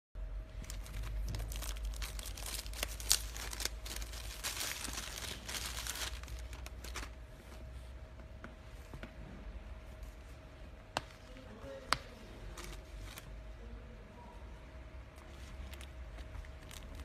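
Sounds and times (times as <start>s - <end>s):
packaging crinkling: 0.5s - 7.2s, 15.6s - 17.0s.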